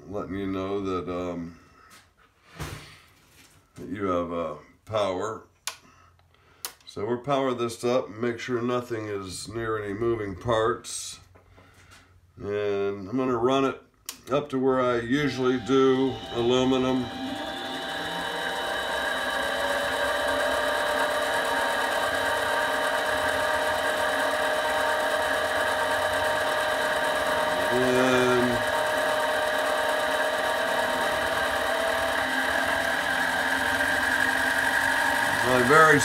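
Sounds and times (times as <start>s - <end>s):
lathe motor whining: 15.1s - 36.0s.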